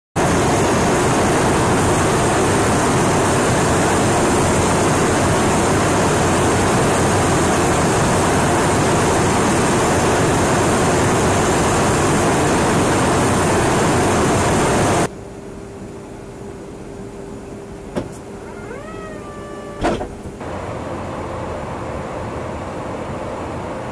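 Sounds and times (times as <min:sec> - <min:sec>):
jet aircraft rushing noise: 0:00.2 - 0:15.1.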